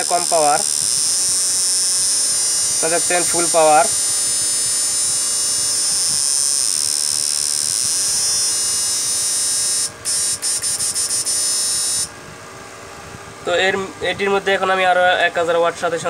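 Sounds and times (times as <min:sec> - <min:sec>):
high-pitched electrical whine and buzz: 0:00.0 - 0:16.0.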